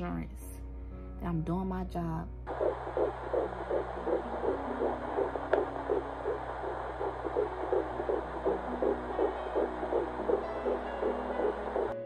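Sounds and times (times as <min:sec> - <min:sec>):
fast fetal heartbeat pulsing: 0:02.5 - 0:12.0
low steady hum: 0:02.5 - 0:12.0.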